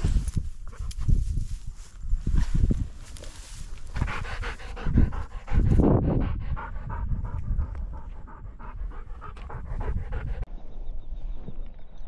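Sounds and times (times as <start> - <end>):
dog panting: 3.9 - 10.5.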